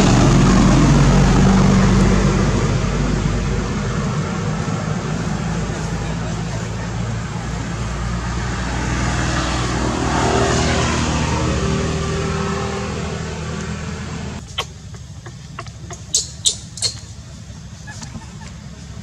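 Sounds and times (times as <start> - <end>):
vehicle engine passing by: 0.0 - 14.6.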